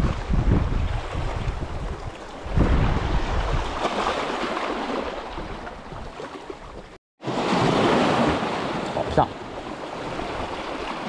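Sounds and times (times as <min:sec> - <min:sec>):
wind buffeting microphone: 0:00.0 - 0:04.0
surf washing on shore: 0:00.0 - 0:11.0.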